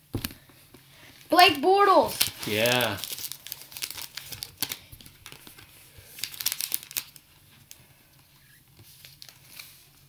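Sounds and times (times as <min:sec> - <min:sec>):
foil wrapper crinkling: 0:02.1 - 0:07.8, 0:08.9 - 0:09.9.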